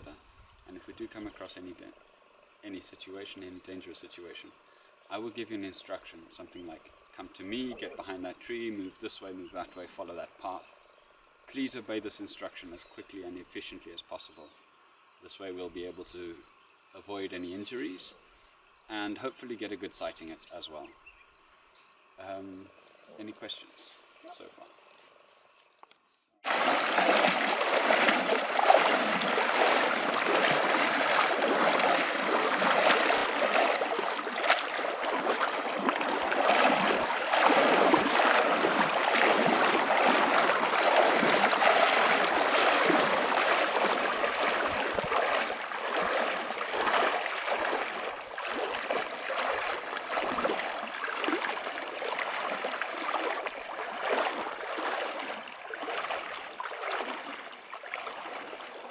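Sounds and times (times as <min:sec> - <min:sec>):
high insect trill: 0:00.0 - 0:58.9
people wading through water: 0:07.5 - 0:08.2, 0:26.4 - 0:58.9.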